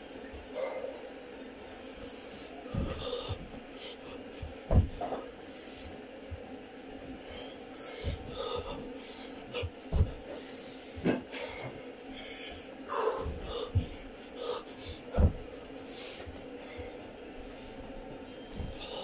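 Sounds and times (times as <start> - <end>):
man breathing hard: 0.5 - 6.0, 7.2 - 19.0
thuds on carpeted floor: 2.7 - 3.6, 4.4 - 5.2, 8.0 - 8.8, 9.6 - 10.3, 13.2 - 14.0, 14.8 - 15.6, 18.5 - 19.0.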